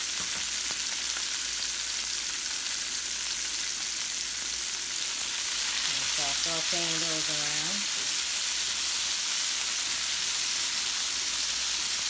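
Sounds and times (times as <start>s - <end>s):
peppers sizzling in oil: 0.0s - 12.0s.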